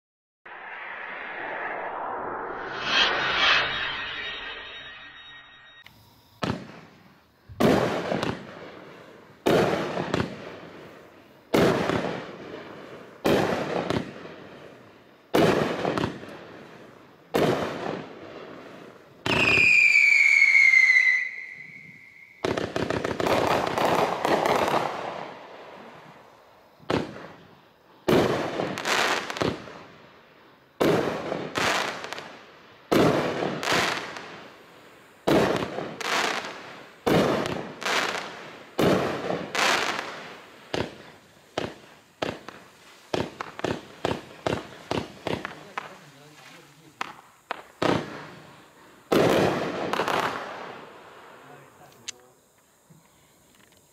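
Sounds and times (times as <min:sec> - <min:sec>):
firework whistle: 0:00.5 - 0:08.6, 0:15.3 - 0:27.5, 0:30.8 - 0:34.5, 0:35.2 - 0:45.6
firework crackling pops: 0:05.8 - 0:30.0, 0:30.8 - 0:53.9
firework bangs: 0:06.4 - 0:27.4, 0:28.0 - 0:29.9, 0:30.8 - 0:34.5, 0:35.2 - 0:51.7.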